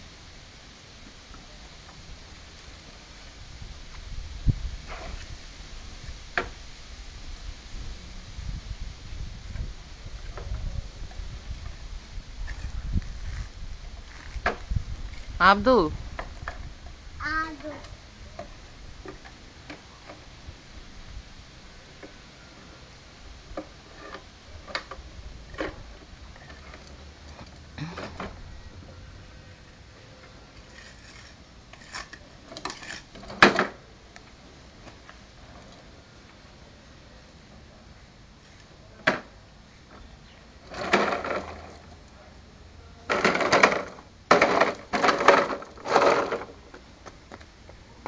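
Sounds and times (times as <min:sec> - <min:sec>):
plastic toys scraping on concrete: 0:23.6 - 0:27.0, 0:30.3 - 0:33.8, 0:40.6 - 0:41.9, 0:43.1 - 0:46.8.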